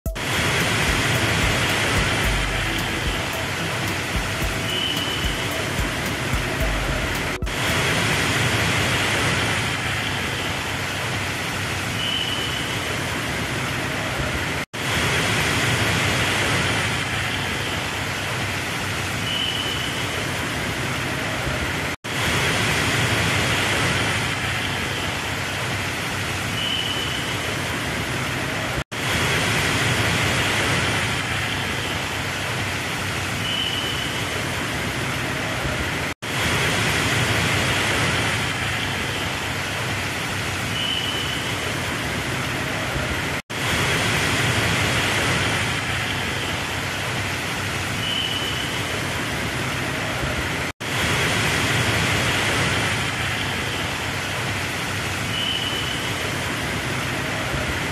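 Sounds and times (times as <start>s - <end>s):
short high beep: 0.1s - 7.9s
heavy rain hissing: 0.1s - 57.9s
traffic on wet road: 0.1s - 57.9s.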